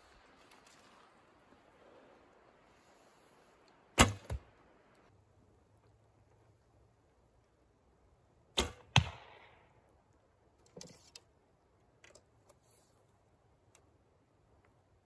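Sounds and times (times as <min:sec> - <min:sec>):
arrow rattling in quiver: 0:04.0 - 0:04.4
bow shot cracks: 0:04.0 - 0:04.5, 0:08.6 - 0:09.7.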